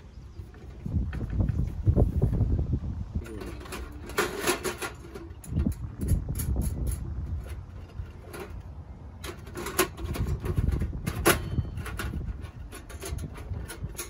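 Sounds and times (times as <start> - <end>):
wind rumble on microphone: 0.0 - 14.0
metal panels clinking and scraping: 3.2 - 14.0.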